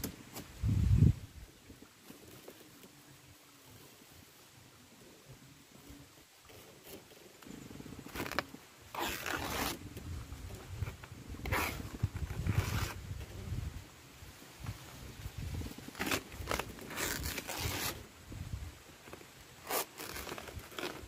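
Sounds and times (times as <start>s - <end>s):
plant sheath tearing rustles: 8.0s - 9.8s, 11.4s - 13.0s, 15.8s - 18.0s, 19.1s - 21.0s
microphone handling rumble: 9.8s - 13.8s.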